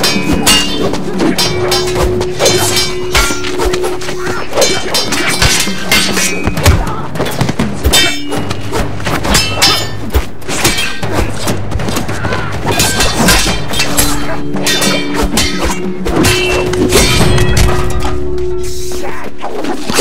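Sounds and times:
sword clashes: 0.0 - 6.6, 7.9 - 8.7, 9.3 - 11.1, 12.7 - 18.1
background music: 0.0 - 19.6.

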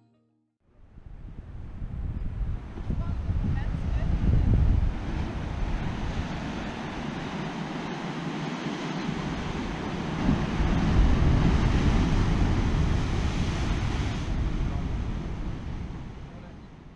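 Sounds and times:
wind on microphone: 0.7 - 16.9
surf breaking on rocks: 4.7 - 16.3.

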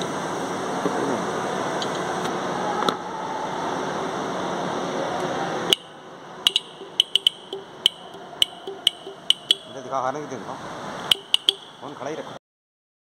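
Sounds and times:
steady background noise: 0.0 - 12.4
wire tapping battery terminal clicks: 6.5 - 9.7, 11.1 - 11.9.

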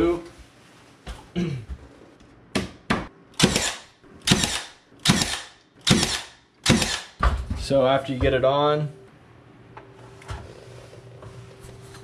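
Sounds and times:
nail gun shots with hiss: 3.4 - 7.2.

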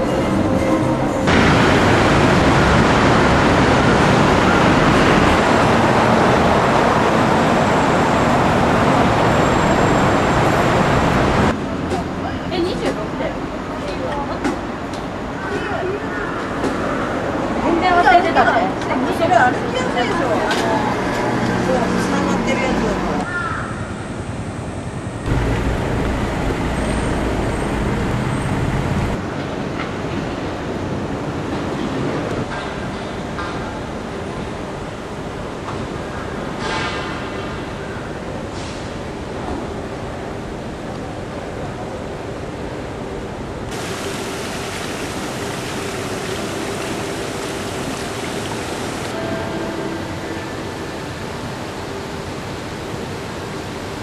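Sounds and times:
outdoor ambience rush: 0.0 - 54.0
heavy vehicle engine and tyre rumble: 24.1 - 40.8
water running over glass: 43.7 - 49.2.

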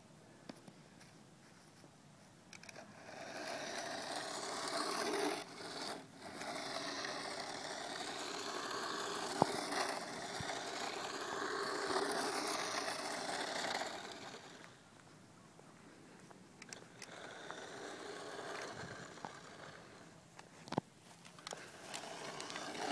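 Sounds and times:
toy car motor whirring: 2.5 - 14.8, 16.6 - 20.2, 21.4 - 22.9.

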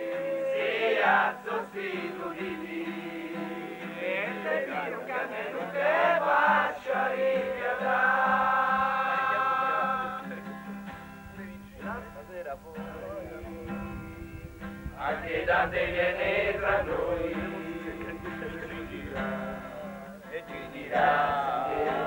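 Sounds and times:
group of voices chanting: 0.0 - 10.3, 15.0 - 22.0.

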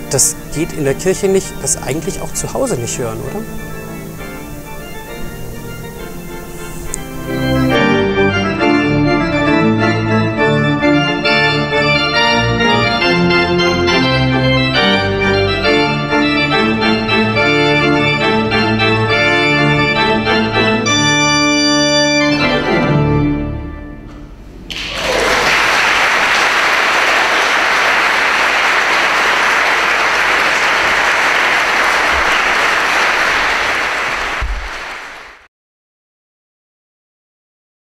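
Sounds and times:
church organ playing chords: 0.0 - 24.5.

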